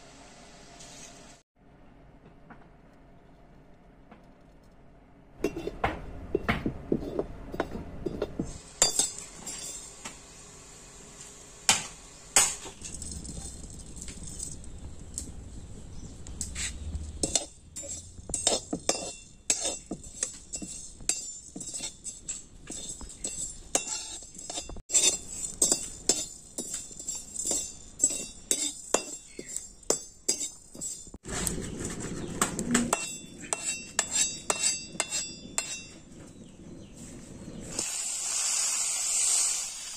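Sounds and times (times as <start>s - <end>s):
spices rattling over metal: 12.4s - 36.2s
spatula scraping metal pan: 16.4s - 36.0s.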